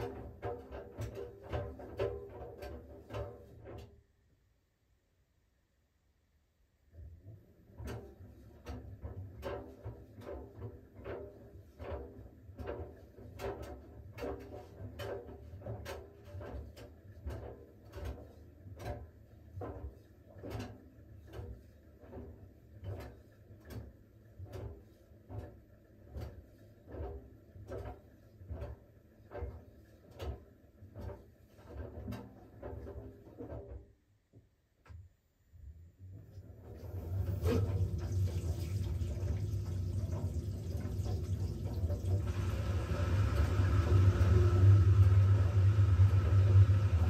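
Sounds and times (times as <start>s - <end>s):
laundry tumbling with soft knocks: 0.0s - 3.9s, 36.3s - 47.0s
washing machine drum humming: 36.2s - 47.0s.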